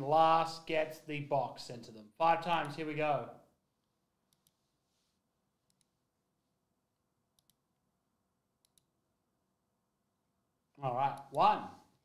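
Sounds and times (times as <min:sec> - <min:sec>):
computer mouse clicks: 0:04.3 - 0:04.6, 0:05.7 - 0:06.0, 0:07.4 - 0:07.6, 0:08.6 - 0:08.9.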